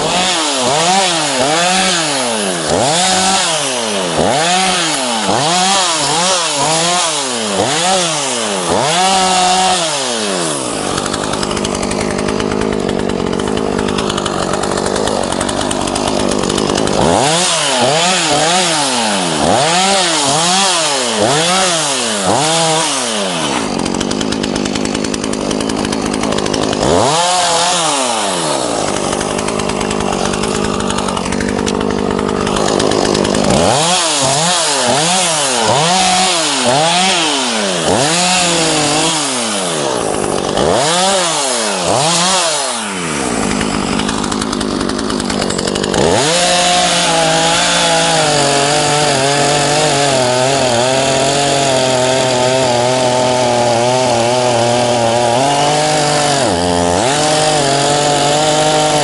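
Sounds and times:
chainsaw cutting branches: 0.0 - 59.0
chainsaw engine revving: 0.0 - 59.0.

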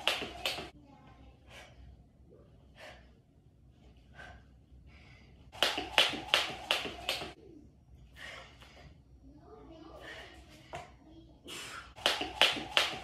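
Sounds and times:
jump rope slapping floor: 0.0 - 0.7, 5.6 - 7.4, 12.0 - 13.0
faint breaths: 1.0 - 5.6, 7.4 - 12.0.

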